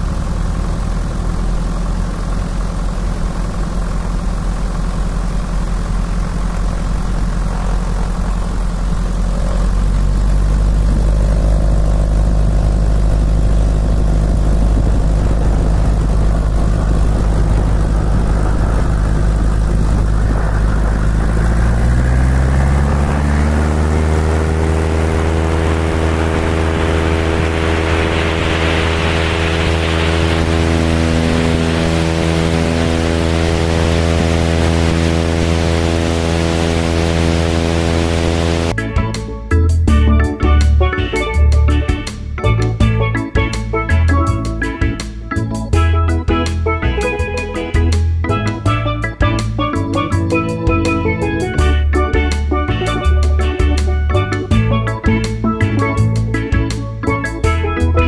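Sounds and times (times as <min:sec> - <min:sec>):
propeller plane engine: 0:00.0 - 0:58.0
rush of air: 0:08.7 - 0:38.8.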